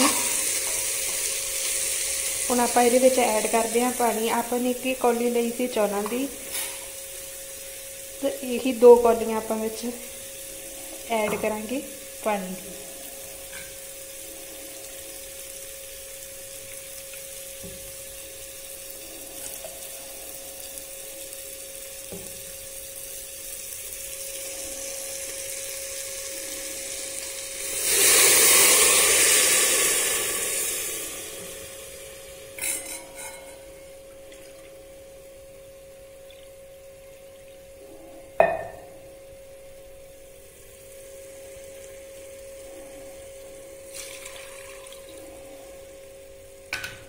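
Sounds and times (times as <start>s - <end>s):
water pouring into hot pot: 0.0s - 32.6s, 34.1s - 35.0s, 43.2s - 45.4s
vegetables sizzling in oil: 0.0s - 47.0s
steel bowls clinking: 32.5s - 34.6s.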